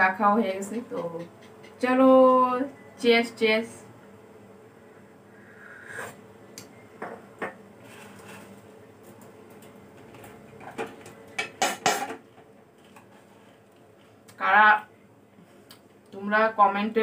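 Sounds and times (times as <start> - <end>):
knocks on crockery: 11.5 - 12.2.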